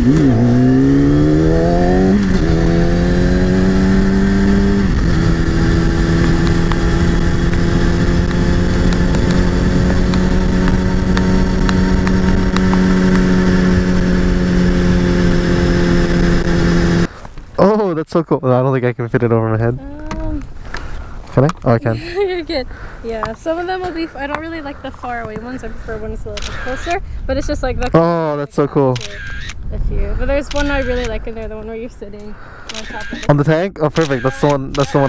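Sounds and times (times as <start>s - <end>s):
motorcycle engine accelerating: 0.0s - 17.1s.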